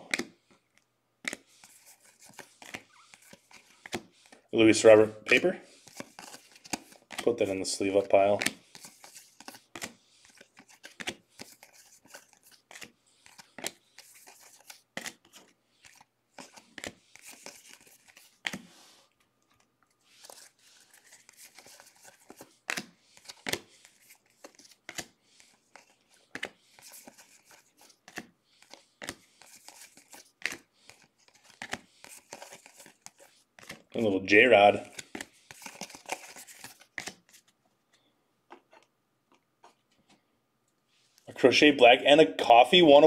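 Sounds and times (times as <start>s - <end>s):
trading cards flicking and sliding: 1.2s - 4.4s, 5.3s - 18.9s, 19.5s - 33.9s, 34.8s - 37.5s.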